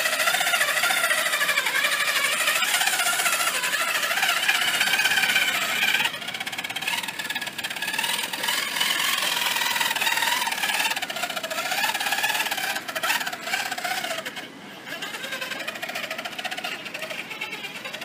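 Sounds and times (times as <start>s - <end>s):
rc truck electric motor whining: 0.0s - 18.0s.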